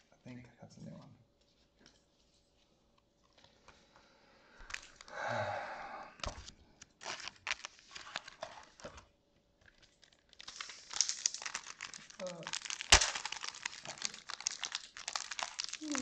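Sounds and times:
sharp plastic crackles: 6.2 - 16.0
plastic wrapper tearing and crinkling: 7.0 - 9.0, 9.6 - 16.0.

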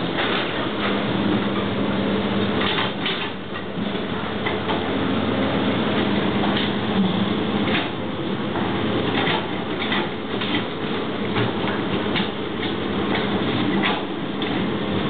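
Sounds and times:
excavator engine running: 0.0 - 15.0.

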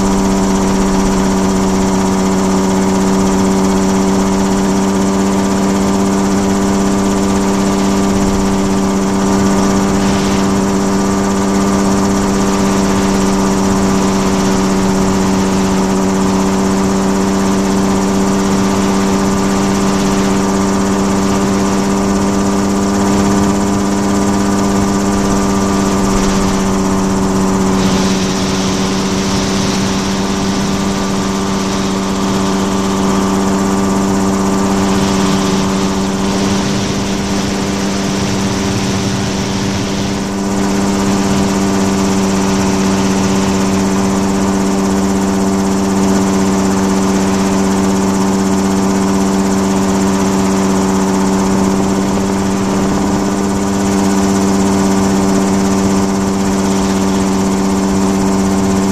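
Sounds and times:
aircraft engine and propeller: 0.0 - 58.9
hiss of passing air: 7.8 - 15.8, 24.8 - 44.4.

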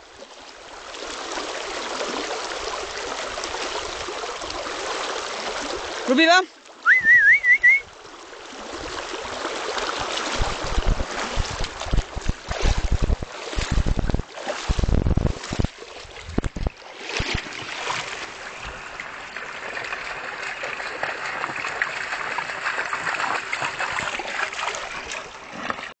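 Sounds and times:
river water rushing: 0.3 - 25.7
knocks on microphone: 16.3 - 16.7.

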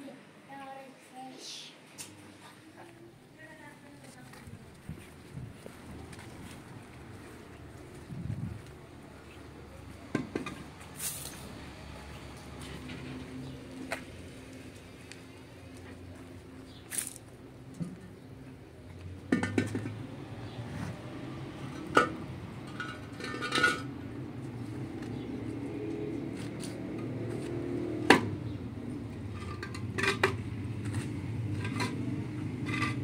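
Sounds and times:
concrete blocks and metal knocking: 19.2 - 20.1, 29.2 - 33.0.

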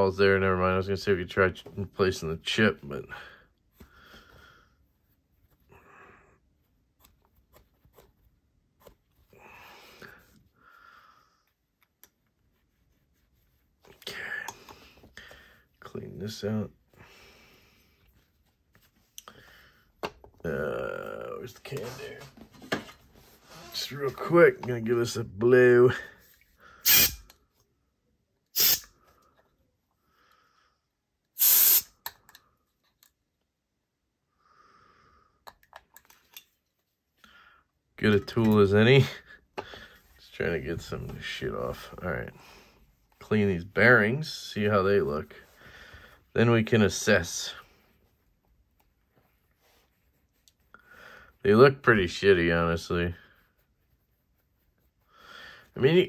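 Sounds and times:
faint breathing: 3.1 - 4.9, 9.2 - 11.6, 14.0 - 15.8, 16.9 - 18.1, 19.2 - 20.0, 34.3 - 35.4, 37.2 - 37.8, 39.2 - 40.2, 45.3 - 46.3, 50.6 - 51.4, 55.0 - 55.8
compressed air blasts: 26.8 - 27.2, 28.6 - 28.9, 31.4 - 32.0
handling small parts clicking: 35.4 - 36.7.

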